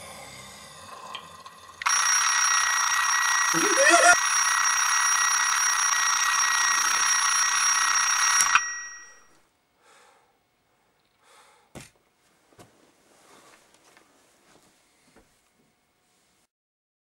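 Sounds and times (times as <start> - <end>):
alarm clock ringing: 1.8 - 9.4
alarm clock switch click: 8.2 - 9.2
bedclothes rustling: 12.2 - 16.4.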